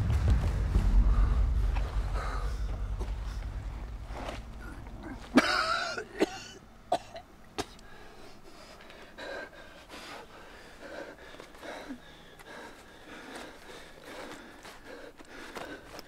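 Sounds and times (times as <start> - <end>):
heavy ragged breathing: 0.0 - 5.4, 7.8 - 16.0
man coughing hard: 5.3 - 7.8.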